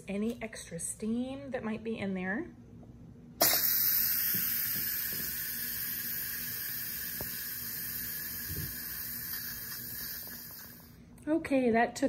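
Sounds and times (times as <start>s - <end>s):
pressure cooker steam hissing: 3.4s - 11.0s.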